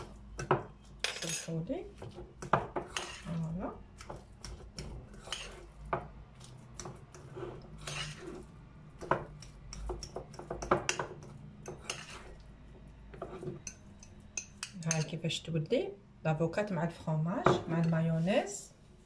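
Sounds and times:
fork scraping ceramic bowl: 0.9s - 8.6s, 10.9s - 12.4s.

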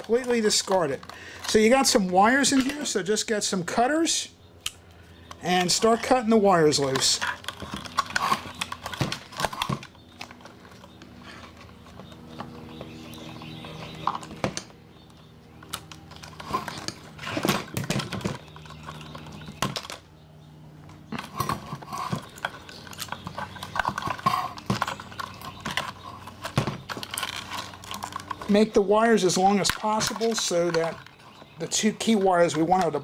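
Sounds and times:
metal housing clicking and rattling: 0.0s - 3.5s, 4.6s - 14.8s, 20.9s - 33.0s.

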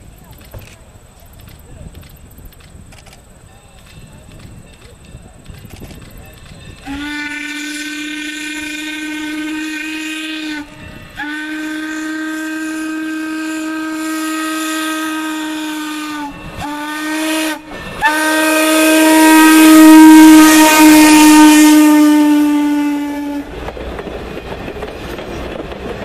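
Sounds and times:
steam locomotive whistle blasts: 6.7s - 23.5s.

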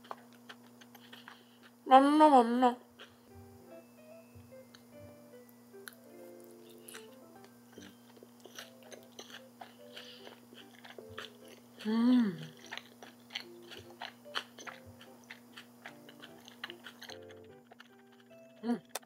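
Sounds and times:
crunchy chewing: 0.0s - 1.8s, 2.9s - 3.3s, 5.8s - 19.0s
light background music: 3.2s - 19.0s
person humming mm: 11.8s - 12.7s, 18.6s - 19.0s.

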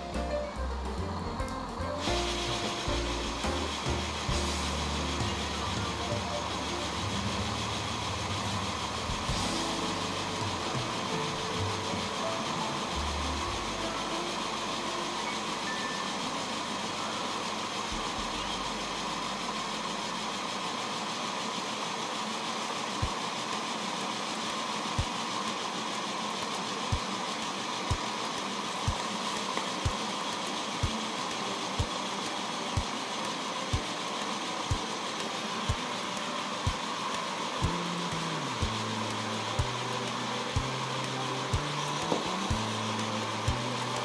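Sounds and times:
locomotive running gear turning: 0.0s - 44.0s
steam hissing: 0.0s - 44.0s.

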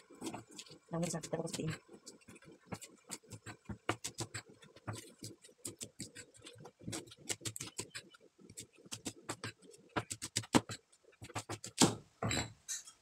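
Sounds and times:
cleaver chopping on plastic board: 11.3s - 12.0s.

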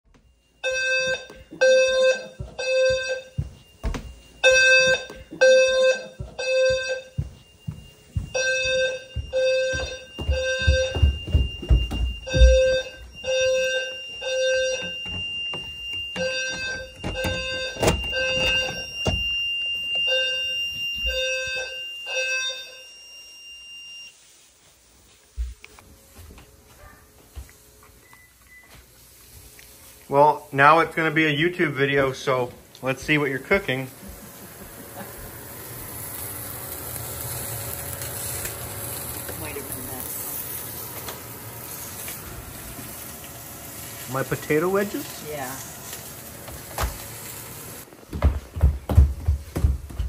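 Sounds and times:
fire alarm horns buzzing: 0.0s - 24.2s, 43.7s - 45.6s
steady high beep: 0.2s - 24.2s.

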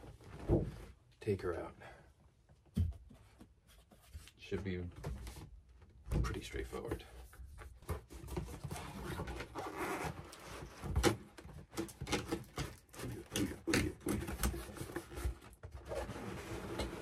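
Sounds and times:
cardboard box scraping and knocking: 7.8s - 17.0s.

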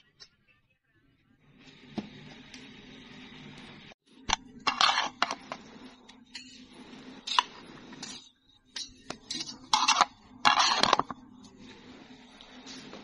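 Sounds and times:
metal spatula scraping a tray: 4.7s - 5.6s, 9.3s - 11.2s.

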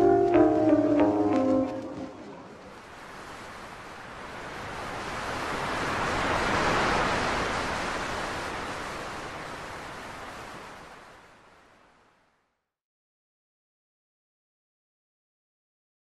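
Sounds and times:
wave surging on beach: 0.0s - 12.5s.

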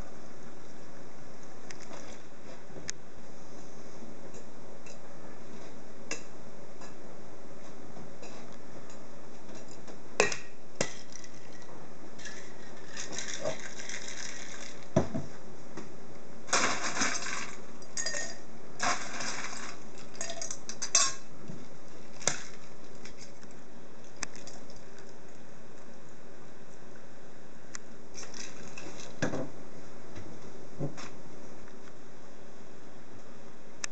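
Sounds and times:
cocktail shaker tins clinking: 10.8s - 14.8s, 16.9s - 18.4s, 20.1s - 21.2s.

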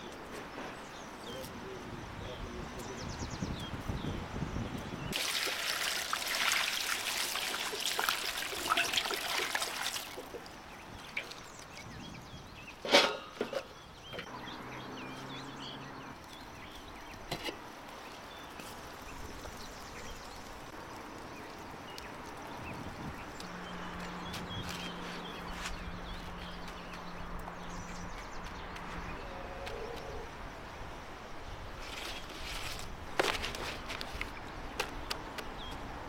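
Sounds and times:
water pouring and splashing: 5.1s - 11.9s.

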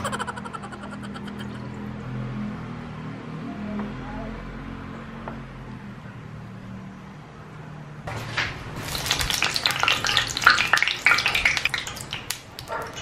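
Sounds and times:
oil popping and sizzling in a pan: 8.1s - 13.0s.

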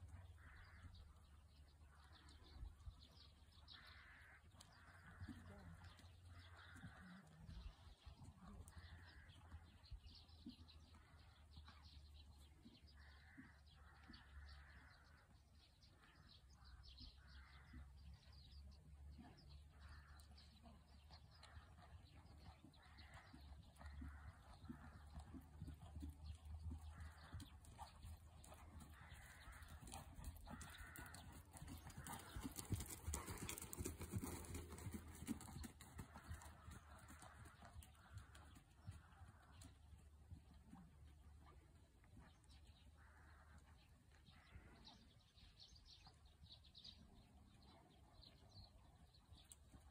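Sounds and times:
distant birds chirping: 19.9s - 40.5s
horse hoofbeats on sand: 23.0s - 39.4s
harsh bird caws: 27.0s - 32.9s.

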